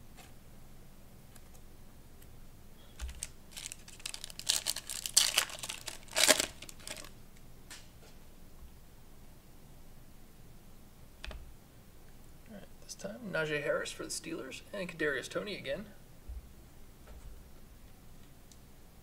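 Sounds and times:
foil wrapper tearing and crinkling: 3.0s - 7.1s.

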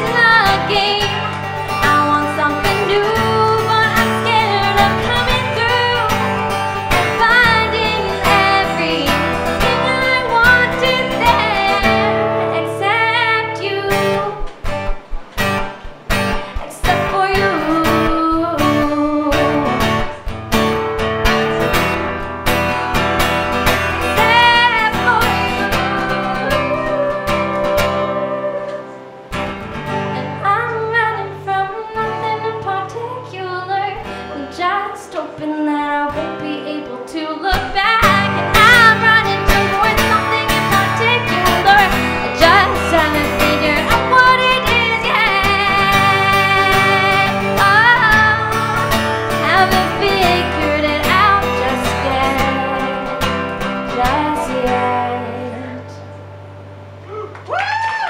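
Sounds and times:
woman singing: 0.0s - 14.6s, 16.3s - 20.3s, 24.0s - 29.0s, 29.8s - 56.1s
strummed acoustic guitar: 0.0s - 57.0s.

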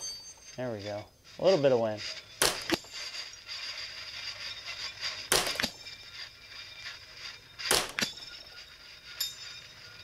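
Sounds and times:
rifle shot: 2.4s - 2.8s, 5.3s - 5.8s, 7.7s - 8.2s.

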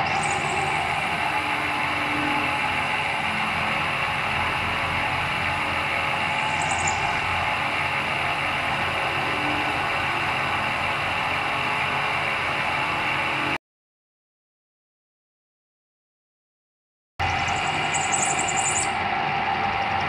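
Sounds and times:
milling machine cutting metal: 0.0s - 13.5s.

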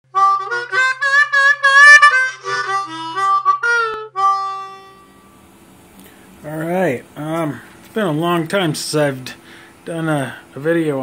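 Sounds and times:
harmonica playing chords: 0.1s - 5.7s.

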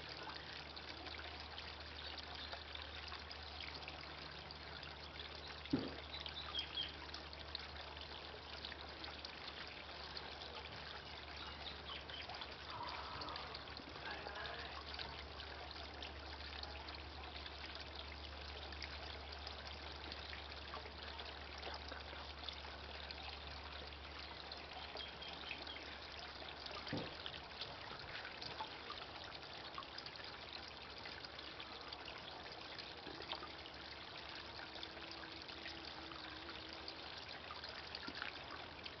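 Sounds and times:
fountain water trickling: 0.0s - 39.0s
brief knock: 5.7s - 6.0s.

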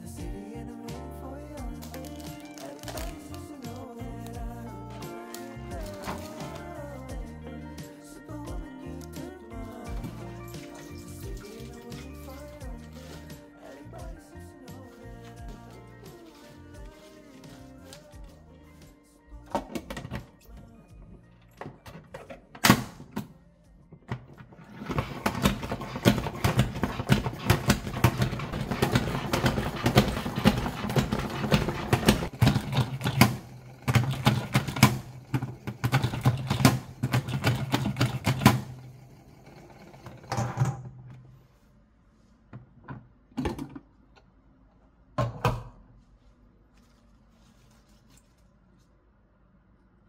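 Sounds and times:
spinning basket whirring: 24.6s - 40.4s
salad spinner pump clicking: 24.8s - 38.6s.

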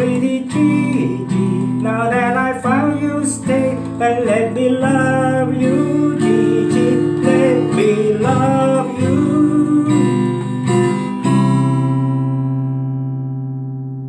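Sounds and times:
acoustic guitar strumming chords: 0.0s - 14.0s.

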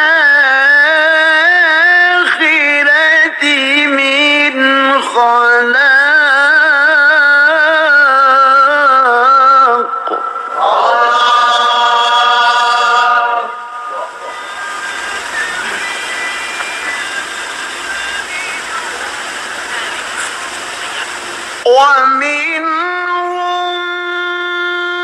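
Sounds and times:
person chanting: 0.0s - 25.0s
room noise hiss: 8.5s - 21.7s.

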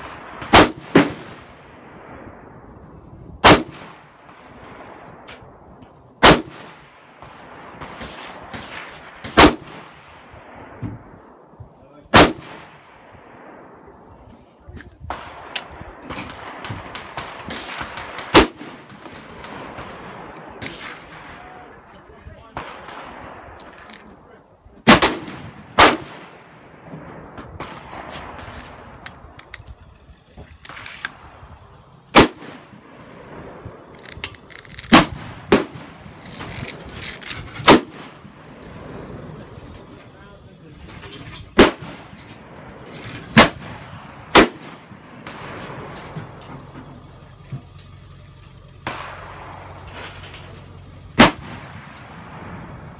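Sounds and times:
distant gunshots cracking: 0.0s - 2.1s, 6.2s - 11.2s, 12.1s - 13.9s, 15.1s - 21.5s, 24.9s - 29.4s, 30.6s - 39.4s, 41.6s - 46.4s, 48.8s - 50.2s, 51.2s - 52.9s
loud rifle shot: 0.0s - 2.8s, 3.4s - 5.6s, 6.2s - 11.2s, 12.1s - 14.0s, 15.0s - 21.6s, 24.8s - 29.4s, 30.7s - 39.5s, 40.9s - 46.4s, 48.8s - 50.3s, 51.1s - 52.9s.

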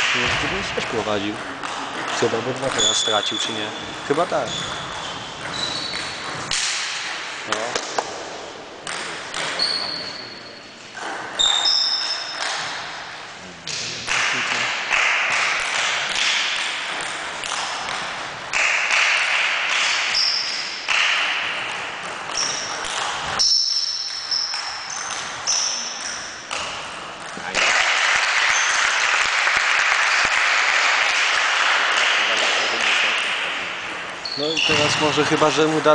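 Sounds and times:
table tennis ball hitting bats and table: 0.0s - 35.9s
short high squeaks: 2.8s - 6.3s, 9.6s - 10.8s, 11.4s - 12.5s, 34.2s - 35.0s.

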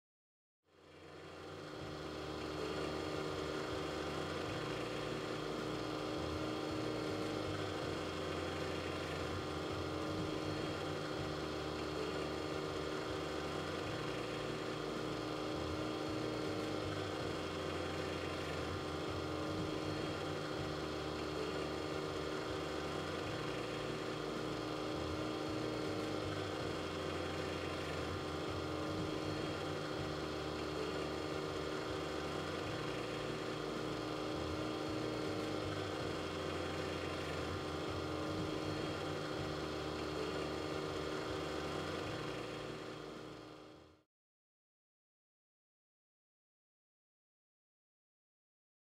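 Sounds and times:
compressor mechanical hum: 0.7s - 44.0s.

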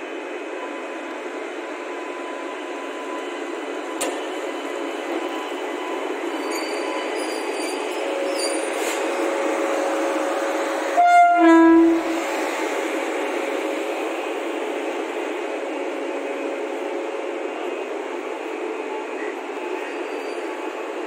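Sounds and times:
electric locomotive running: 0.0s - 21.0s
locomotive horn two-note blast: 10.9s - 12.2s.

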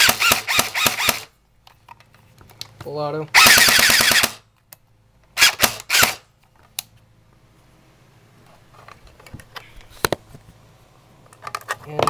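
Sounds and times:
airsoft rifle firing bursts: 0.0s - 1.3s, 3.4s - 4.4s, 5.4s - 6.2s.

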